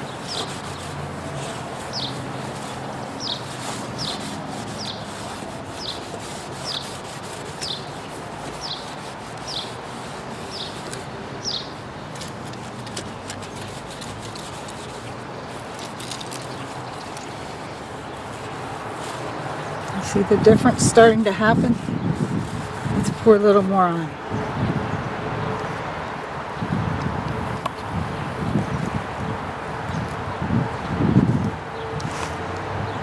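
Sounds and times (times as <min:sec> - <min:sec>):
lemon scrubbing plastic lens: 0:00.0 - 0:20.1.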